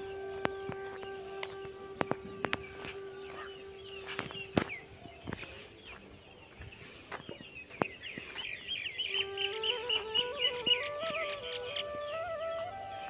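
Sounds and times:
background music held note: 0.0s - 5.2s
small birds chirping: 0.0s - 13.0s.

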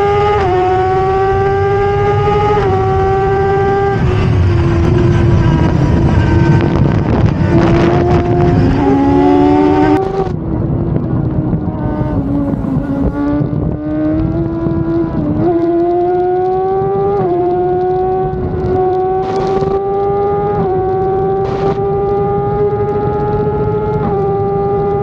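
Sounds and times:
race car engine at full throttle: 0.0s - 25.0s
wind rush on microphone: 0.0s - 25.0s
hissing wind gusts: 2.5s - 15.4s.

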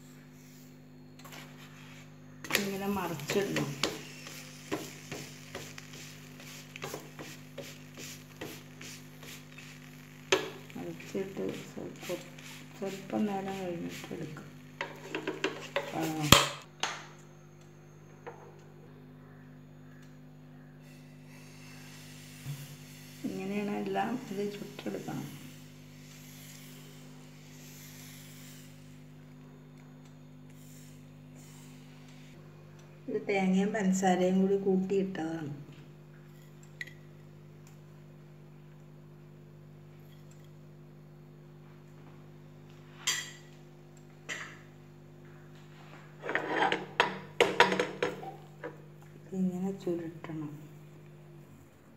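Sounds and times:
steady low hum: 0.0s - 51.9s
faint hiss: 20.9s - 29.0s
spatula scraping on pan: 46.2s - 47.1s.

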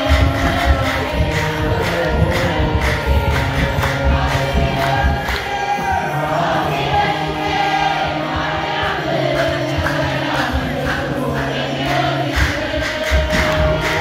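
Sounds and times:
hand-clapping: 0.0s - 5.5s, 9.3s - 11.2s, 11.8s - 14.0s
congregation singing a hymn: 0.0s - 14.0s.

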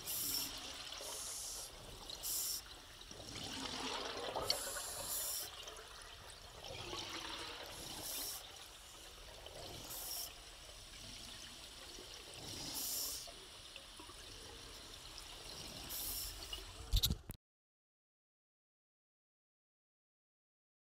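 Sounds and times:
regulator exhale bubbles rushing: 0.0s - 5.9s
steady underwater hiss: 0.0s - 16.9s.

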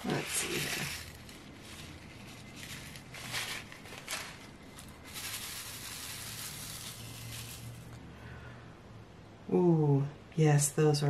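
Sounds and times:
beads rattling across plastic tray: 0.0s - 8.0s
plastic bag rustling: 0.0s - 8.0s.

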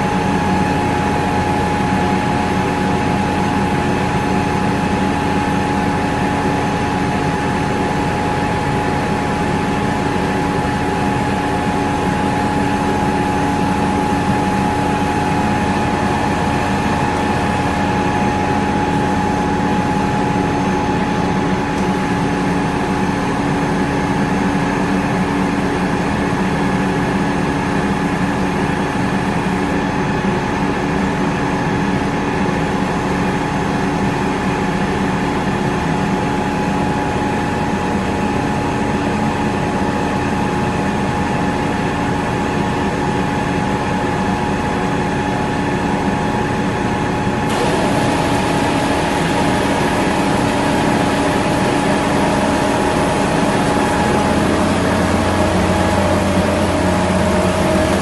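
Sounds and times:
constant whine: 0.0s - 26.3s, 43.8s - 58.0s
diesel engine idling: 47.5s - 58.0s.

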